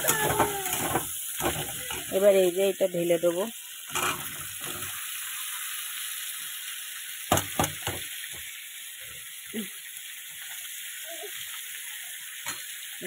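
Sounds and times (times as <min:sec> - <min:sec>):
vegetables sizzling in hot oil: 0:00.0 - 0:13.0
sharp knocks: 0:07.3 - 0:08.0.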